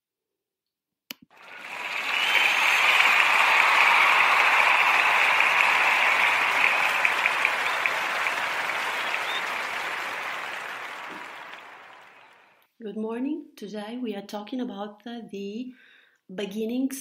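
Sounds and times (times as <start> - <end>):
applause: 1.3 - 12.6
single claps: 1.4 - 12.4.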